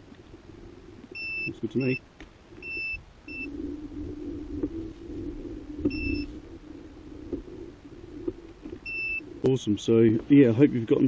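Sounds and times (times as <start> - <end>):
hoverboard motors humming: 0.0 - 11.0.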